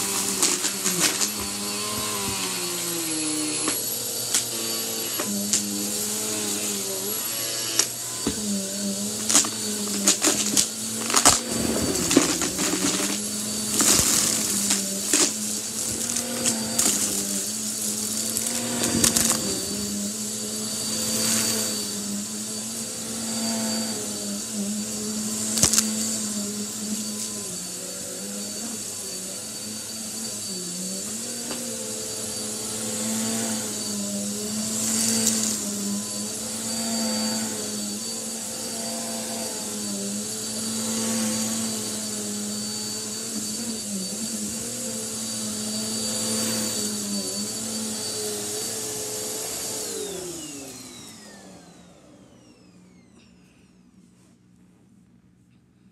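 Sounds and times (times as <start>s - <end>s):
upright vacuum cleaner running: 0.0s - 53.9s
debris rattling through vacuum: 8.2s - 20.3s.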